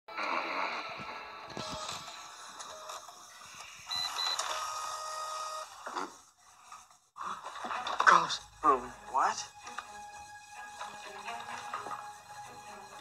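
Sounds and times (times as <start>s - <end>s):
short high beeps: 3.9s - 4.4s.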